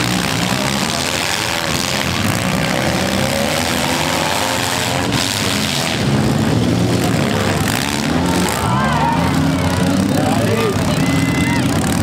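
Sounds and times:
car engines revving: 0:00.0 - 0:12.0.

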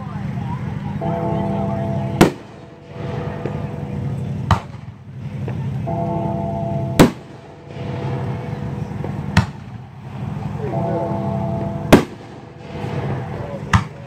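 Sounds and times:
firework shells bursting: 0:02.1 - 0:06.1, 0:06.8 - 0:11.0, 0:11.6 - 0:14.0.

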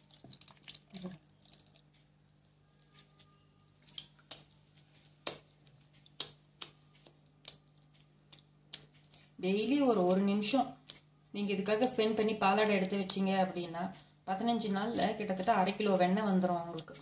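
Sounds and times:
water drips and splats: 0:00.0 - 0:11.1, 0:14.7 - 0:17.0.

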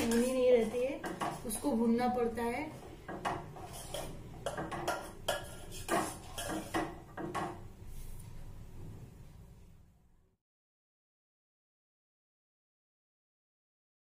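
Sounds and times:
metal spoon stirring in a pot: 0:00.0 - 0:08.0.

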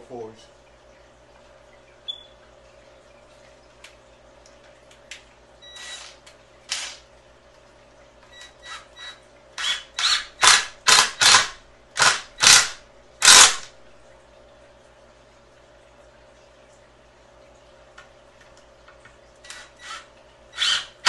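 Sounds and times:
cordless drill bursts: 0:05.8 - 0:07.0, 0:08.6 - 0:13.7, 0:19.5 - 0:21.0.

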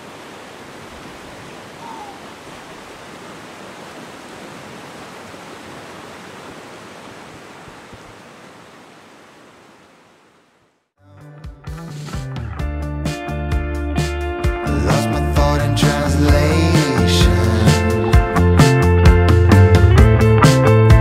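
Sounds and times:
rushing water: 0:00.0 - 0:10.8
faint falling chirp: 0:01.5 - 0:02.5.

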